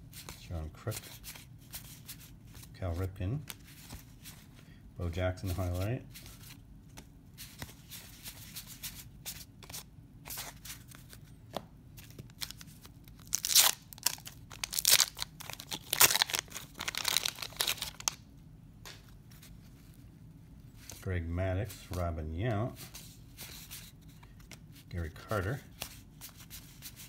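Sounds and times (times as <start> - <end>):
cards rustling in hand: 0.0 - 18.2, 18.8 - 27.0
paper wrapper tearing: 12.3 - 18.2.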